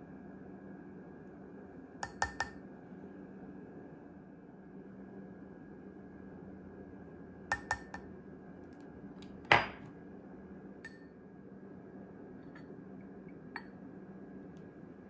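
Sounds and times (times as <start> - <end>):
spoons clinking on glass bowl: 2.0 - 2.6, 7.5 - 8.0.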